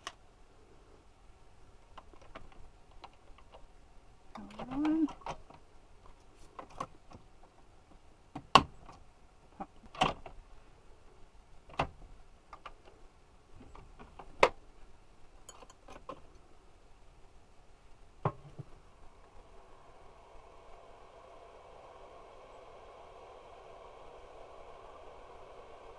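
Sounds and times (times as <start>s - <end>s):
coffee brewer humming: 18.2s - 25.9s.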